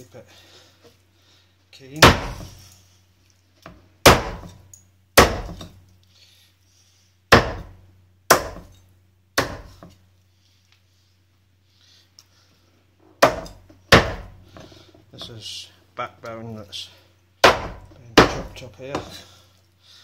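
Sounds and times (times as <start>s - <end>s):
cleaver chopping on wooden block: 2.0s - 2.6s, 4.0s - 4.6s, 5.2s - 5.7s, 7.3s - 8.7s, 9.4s - 9.9s, 13.2s - 14.6s, 17.4s - 19.2s.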